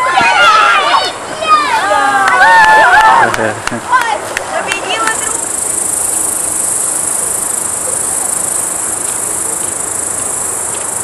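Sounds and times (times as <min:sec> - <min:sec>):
insects chirping: 0:04.6 - 0:11.0.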